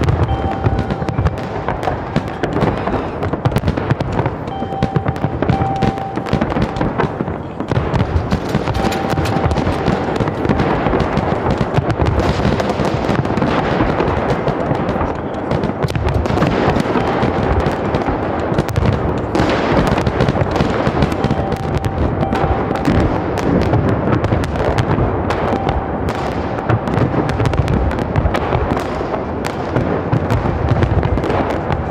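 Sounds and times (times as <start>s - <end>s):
fireworks bangs and crackling: 0.0s - 31.9s.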